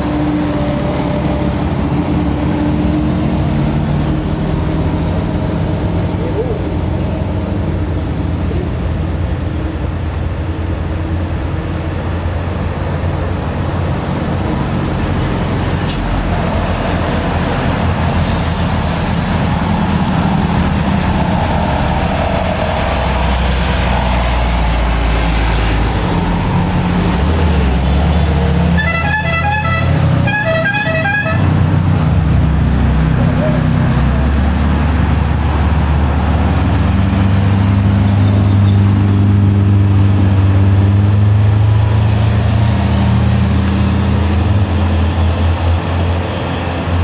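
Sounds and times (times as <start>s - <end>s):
truck diesel engine pulling uphill: 0.0s - 47.0s
horn short toots: 28.8s - 31.5s.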